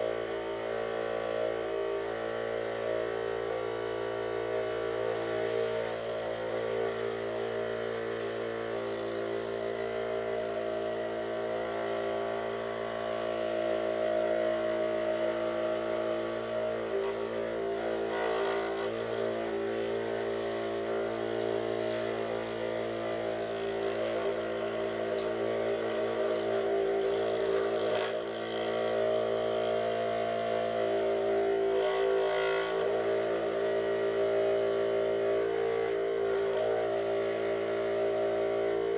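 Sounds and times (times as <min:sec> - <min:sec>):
scroll saw cutting plywood: 0:04.9 - 0:38.9.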